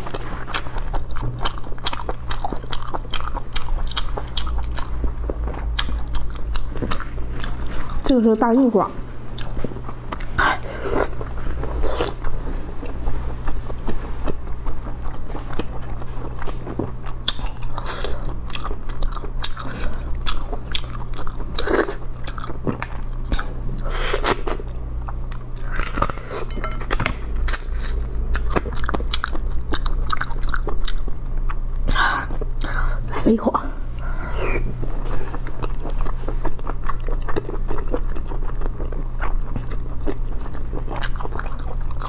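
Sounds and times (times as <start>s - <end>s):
wet chewing and mouth clicks: 0.0s - 8.1s, 9.4s - 26.6s, 27.5s - 31.6s
steady low hum: 0.0s - 42.0s.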